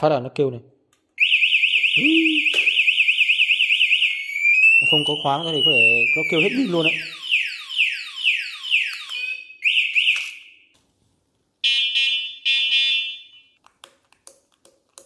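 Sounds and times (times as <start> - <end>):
falling electronic alarm whoop: 1.2 - 9.5
long electronic beeps: 4.0 - 8.4.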